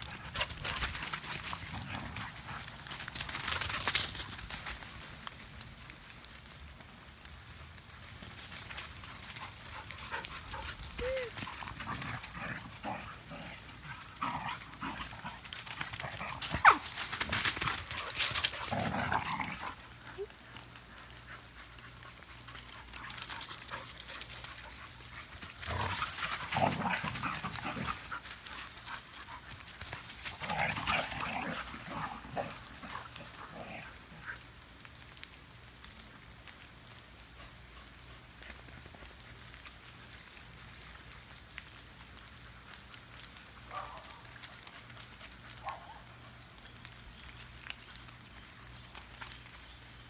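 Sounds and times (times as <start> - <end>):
dogs growling and yelping: 10.1 - 16.9, 18.0 - 20.3, 25.6 - 29.4, 30.3 - 34.4.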